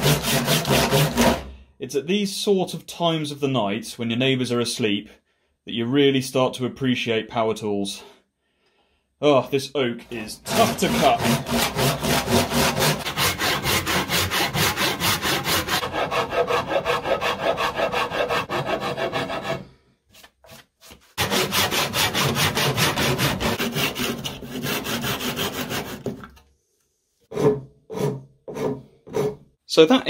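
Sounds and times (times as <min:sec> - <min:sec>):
handsaw cutting wood: 0:00.0 - 0:01.5, 0:10.4 - 0:19.7, 0:20.9 - 0:26.2, 0:27.3 - 0:29.4.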